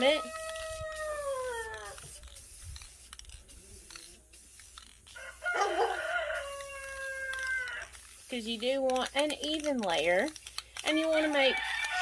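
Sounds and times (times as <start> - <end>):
aerosol spray can hissing: 0.0 - 12.0
rooster crowing: 5.1 - 7.9, 11.3 - 12.0.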